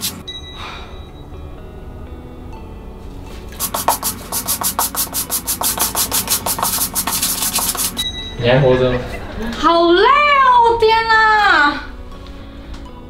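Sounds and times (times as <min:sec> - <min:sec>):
plastic brush scrubbing wet cloth: 0:03.6 - 0:08.0.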